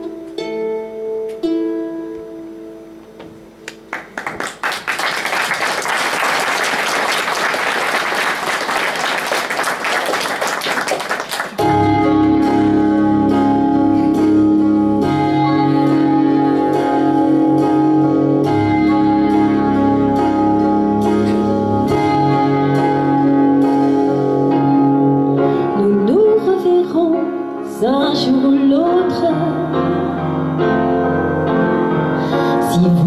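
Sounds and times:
audience applause: 3.9 - 11.6
instrumental music with beat: 11.6 - 25.2.

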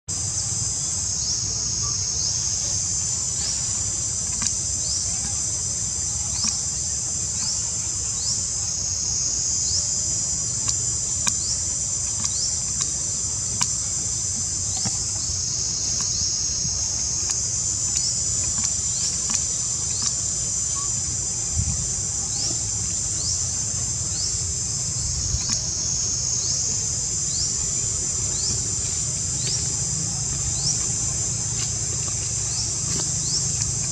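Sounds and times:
insect chorus chirping: 0.1 - 33.9.

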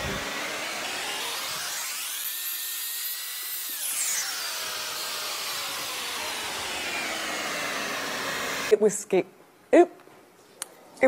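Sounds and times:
hair dryer blowing: 0.0 - 8.7.

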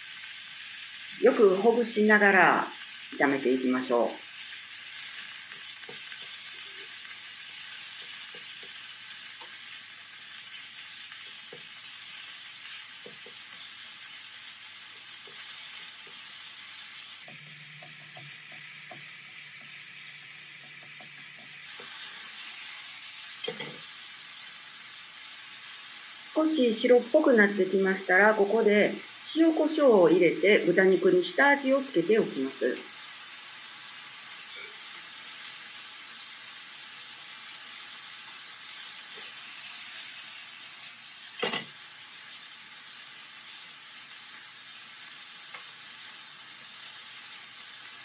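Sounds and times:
meat sizzling in a frying pan: 0.0 - 48.0
chopsticks clicking on pan: 23.4 - 23.8.

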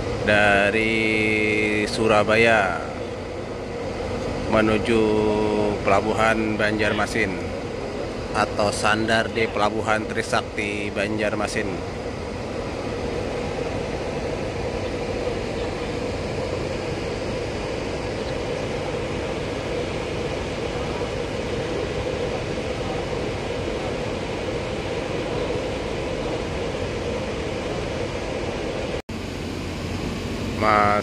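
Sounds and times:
machinery drone: 0.0 - 31.0.

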